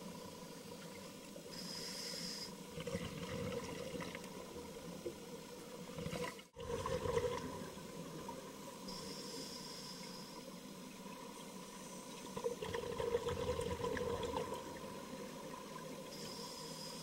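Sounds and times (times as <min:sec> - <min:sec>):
faint steady whine: 0:00.0 - 0:17.0
underwater rumble and bubbling: 0:02.6 - 0:09.0, 0:10.4 - 0:16.5.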